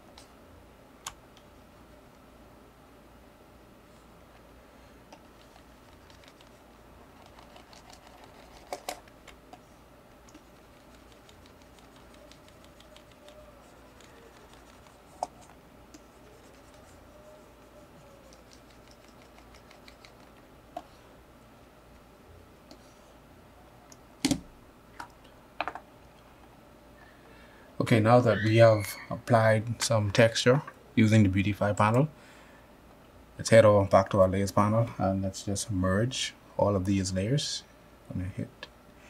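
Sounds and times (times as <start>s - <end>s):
light scratchy tapping: 10.2s - 20.9s.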